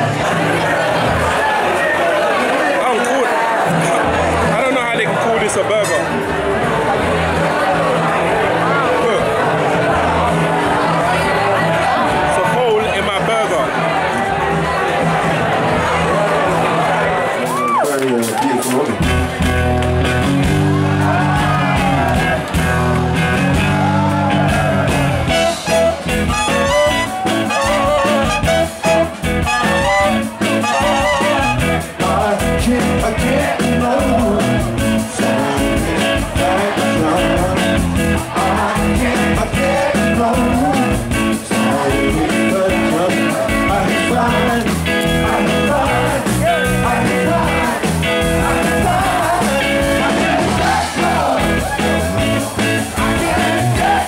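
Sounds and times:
live band with bass and drums: 0:00.0 - 0:01.7, 0:02.9 - 0:54.0
singer's voice: 0:20.7 - 0:54.0.

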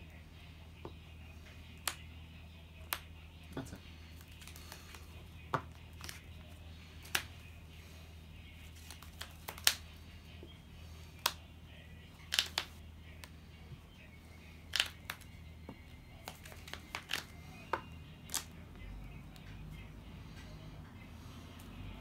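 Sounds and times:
low steady hum: 0:00.0 - 0:22.0
trading cards clicking and snapping: 0:01.7 - 0:02.0, 0:02.8 - 0:03.1, 0:04.1 - 0:06.3, 0:07.0 - 0:07.4, 0:08.7 - 0:10.0, 0:11.0 - 0:11.4, 0:12.2 - 0:13.4, 0:14.7 - 0:15.4, 0:16.2 - 0:18.6.

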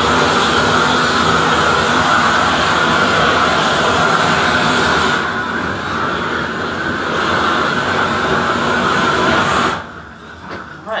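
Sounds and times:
roofing torch hissing: 0:00.0 - 0:11.0.

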